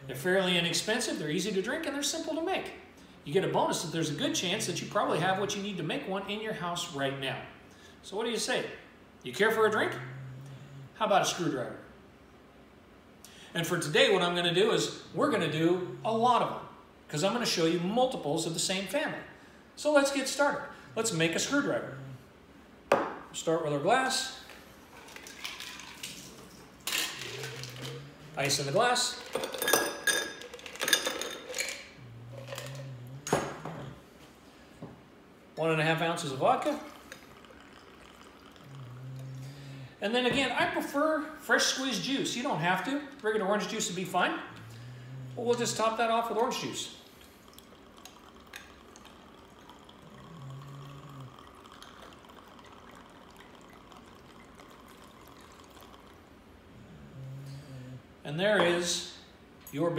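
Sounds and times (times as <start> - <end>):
ice clinking: 24.9 - 33.9, 36.9 - 38.9, 47.4 - 56.2
juice pouring into glass: 24.9 - 33.9, 36.6 - 39.8, 46.5 - 56.3
ice cubes clinking in glass: 25.0 - 28.0, 29.2 - 32.8.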